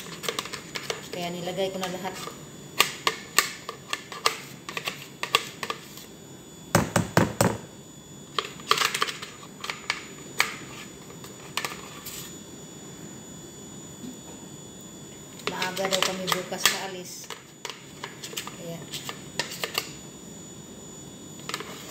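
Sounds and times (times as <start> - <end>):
spoon scraping plastic jar: 0.0 - 1.2.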